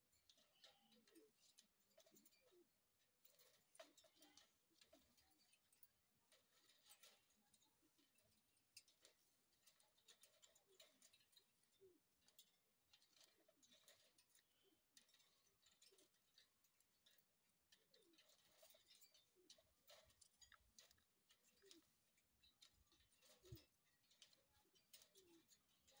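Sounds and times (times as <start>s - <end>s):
claws and beaks on metal bars: 0.0s - 26.0s.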